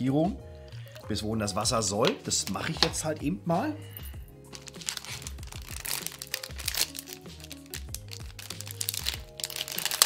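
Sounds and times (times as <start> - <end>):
background music: 0.0 - 10.0
plastic packaging crinkling: 4.5 - 10.0.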